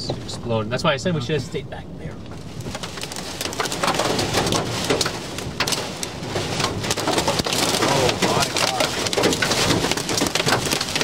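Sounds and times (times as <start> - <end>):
heavy rain on vehicle roof: 2.2 - 11.0.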